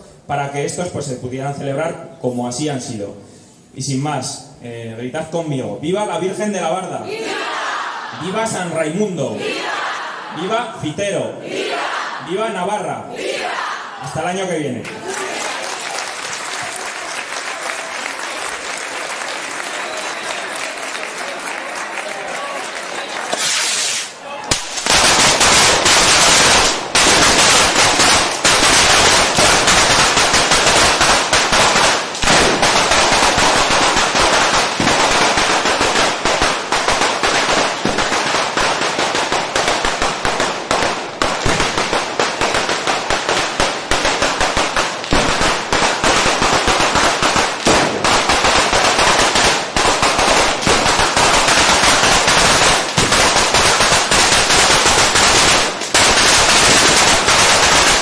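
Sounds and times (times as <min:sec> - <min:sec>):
firecracker bangs and crackling: 0:23.2 - 0:58.0.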